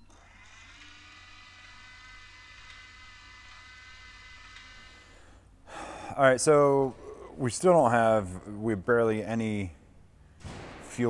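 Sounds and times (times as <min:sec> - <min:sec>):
small electric motor whine: 0:00.0 - 0:05.6.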